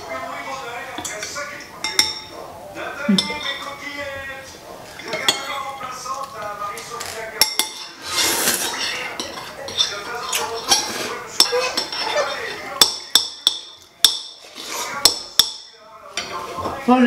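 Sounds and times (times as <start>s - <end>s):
utensils clinking on ceramic bowls: 0.9s - 2.4s, 3.1s - 3.9s, 4.8s - 16.5s
noodle soup slurping: 7.9s - 9.1s.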